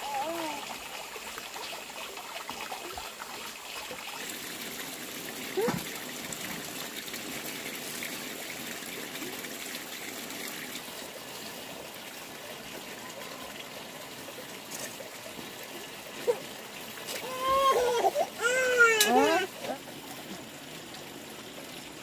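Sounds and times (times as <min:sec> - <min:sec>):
water trickling: 0:00.0 - 0:22.0
high-pitched voice calling out: 0:17.2 - 0:19.8.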